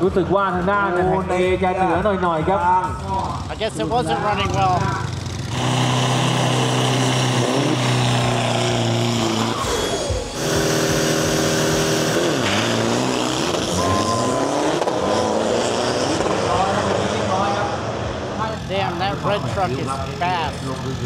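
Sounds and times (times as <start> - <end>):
diesel truck engines revving: 0.0 - 21.0.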